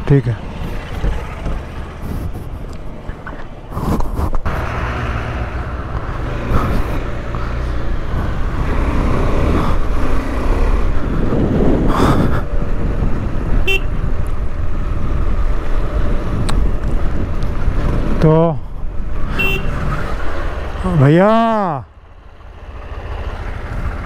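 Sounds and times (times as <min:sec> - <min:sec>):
wind rumble: 0:00.0 - 0:20.9
motorcycle engine running: 0:00.4 - 0:03.4, 0:04.1 - 0:24.0
horn beep: 0:19.4 - 0:19.8.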